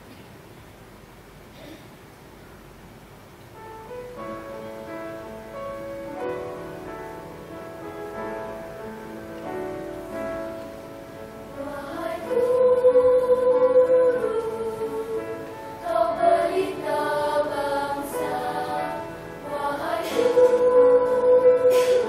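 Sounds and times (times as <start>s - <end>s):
children's choir singing: 11.5s - 22.0s.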